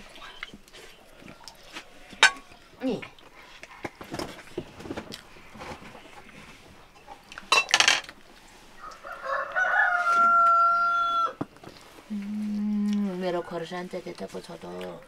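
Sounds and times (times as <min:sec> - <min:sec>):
utensils clinking on dishes: 0:02.2 - 0:02.6, 0:07.4 - 0:08.2
rooster crowing: 0:08.8 - 0:11.4.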